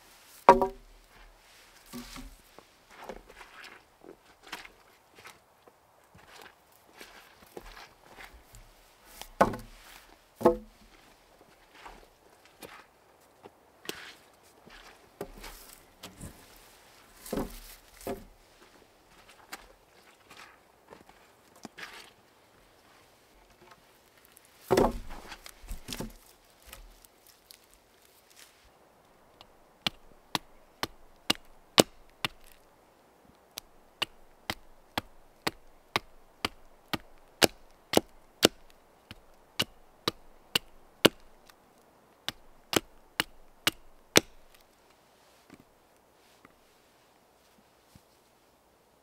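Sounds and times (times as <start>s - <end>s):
rustling: 0.0s - 5.4s, 6.1s - 28.8s, 33.6s - 48.6s
blade chopping wood: 0.4s - 0.9s, 1.9s - 2.4s, 9.2s - 9.8s, 10.4s - 10.7s, 17.2s - 18.3s, 24.7s - 26.8s, 29.8s - 32.6s, 34.0s - 41.4s, 42.3s - 44.6s.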